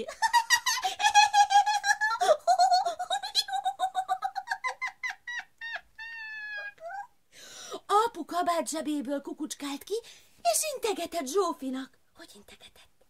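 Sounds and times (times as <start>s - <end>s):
woman's squeaky laugh: 0.1s - 7.1s.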